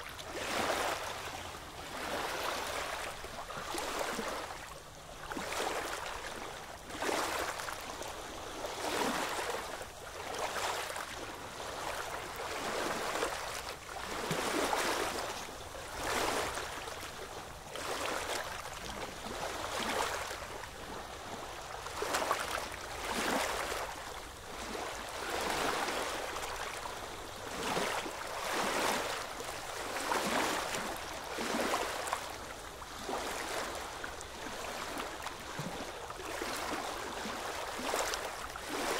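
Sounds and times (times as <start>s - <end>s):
small waves lapping: 0.0s - 38.9s.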